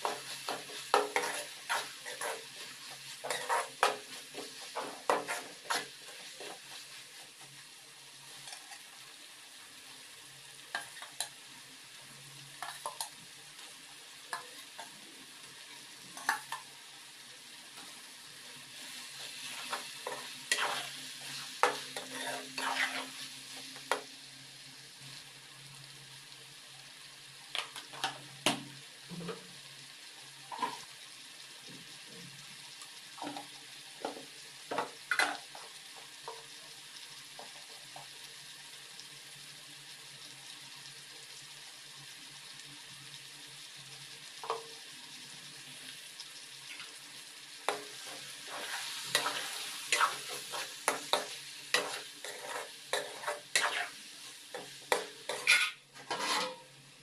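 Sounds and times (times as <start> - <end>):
stirring and scraping in pan: 0.0 - 9.2, 10.6 - 11.7, 12.4 - 17.0, 17.7 - 24.1, 30.4 - 30.9, 33.2 - 38.2, 46.6 - 56.8
food sizzling in a pan: 0.0 - 57.0.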